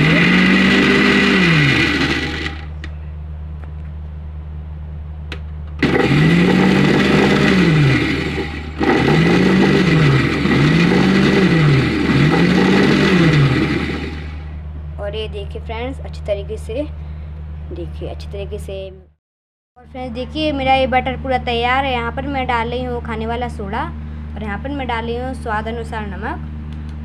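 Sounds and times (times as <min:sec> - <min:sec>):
mixer grinder running: 0:00.0 - 0:02.9, 0:05.8 - 0:14.5.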